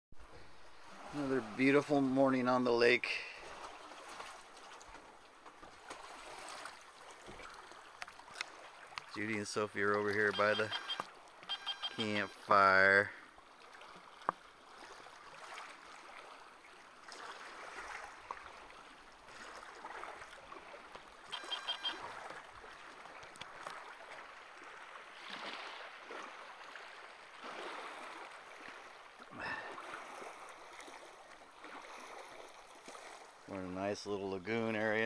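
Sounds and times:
rapid high repeated notes: 10.4s - 12.3s.

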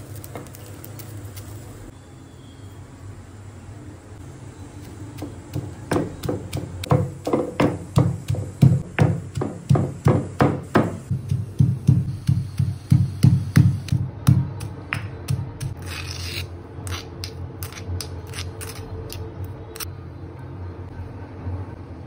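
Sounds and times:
pestle pounding in stone mortar: 5.2s - 15.8s.

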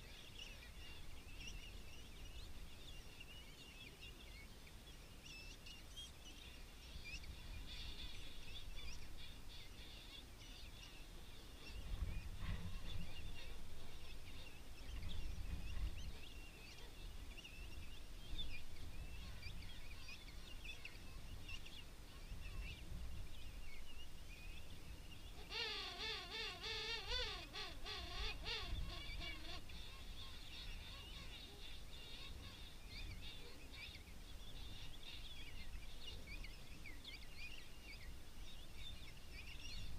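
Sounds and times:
chatter of distant penguins: 7.2s - 17.8s, 25.4s - 36.4s.

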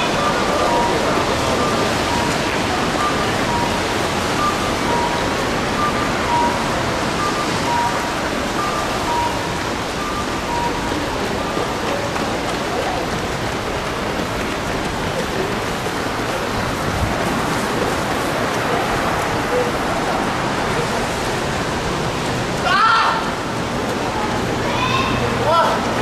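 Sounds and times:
two-tone electronic beeps: 0.0s - 11.8s
steady rushing outdoor noise: 0.0s - 26.0s.

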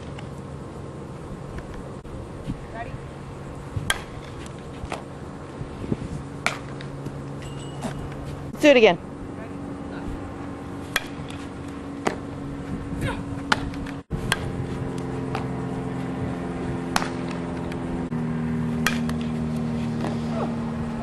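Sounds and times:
steady low hum: 0.0s - 21.0s
softball hitting knocks: 3.8s - 5.1s, 6.4s - 8.3s, 10.8s - 12.3s, 13.4s - 14.6s, 15.3s - 15.5s, 16.9s - 17.7s, 18.8s - 19.4s.

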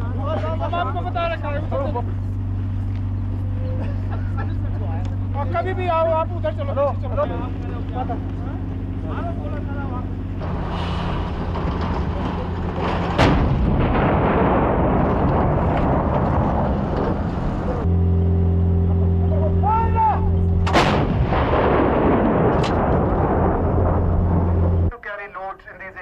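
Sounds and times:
steady low hum: 0.0s - 25.0s
continuous rumble: 0.0s - 26.0s
howitzer blasts: 10.0s - 24.9s.

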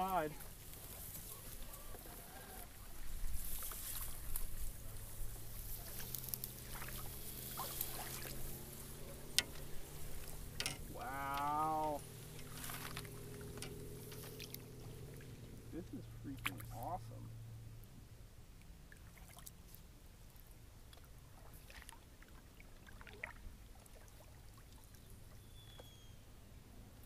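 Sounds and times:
grass brushing along kayak hull: 0.0s - 17.3s
wavering distant call: 0.0s - 17.5s, 25.3s - 26.3s
paddle working in shallow water: 0.0s - 27.0s
clicks and knocks: 10.6s - 11.5s.

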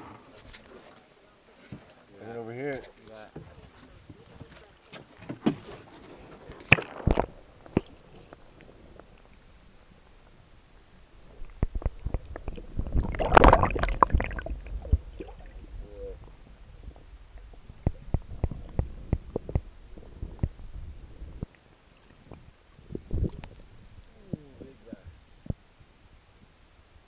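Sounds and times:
underwater splashing: 5.5s - 25.0s
underwater knocks: 11.4s - 15.6s, 17.4s - 19.7s.

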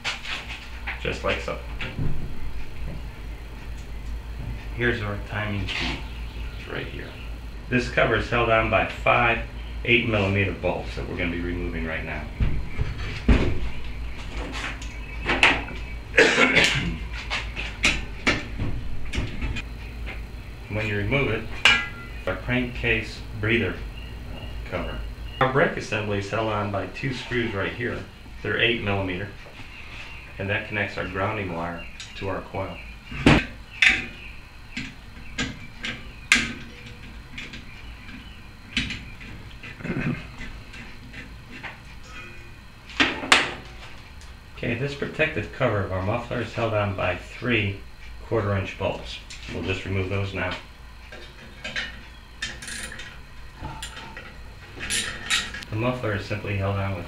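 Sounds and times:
metallic rattling and scraping: 51.2s - 55.6s.

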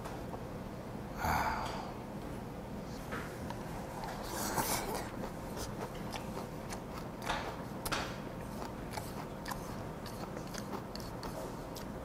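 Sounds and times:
person chewing with mouth clicks: 3.4s - 12.0s.

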